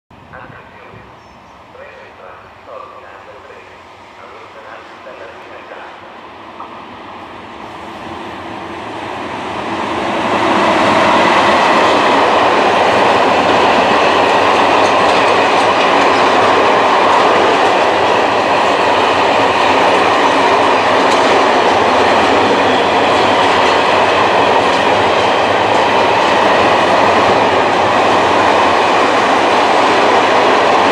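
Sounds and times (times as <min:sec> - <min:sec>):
freight train wheels rolling on rail: 0:00.1 - 0:30.9.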